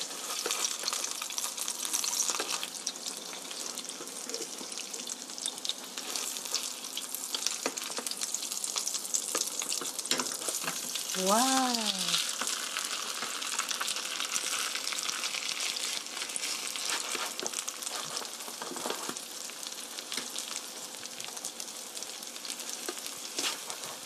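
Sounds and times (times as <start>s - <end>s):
pancakes sizzling in oil: 0.0s - 24.0s.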